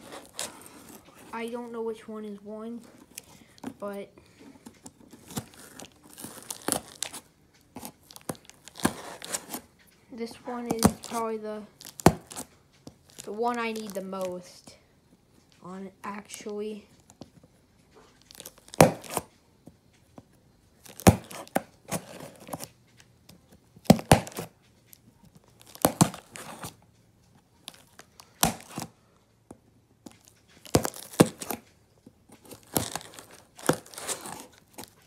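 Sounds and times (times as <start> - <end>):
packing tape ripping: 0.0 - 1.3, 5.2 - 7.2, 23.9 - 24.5, 27.7 - 28.9, 30.6 - 31.6, 32.5 - 35.0
scissors cutting packing tape: 23.9 - 24.5, 30.2 - 31.6, 32.4 - 35.0.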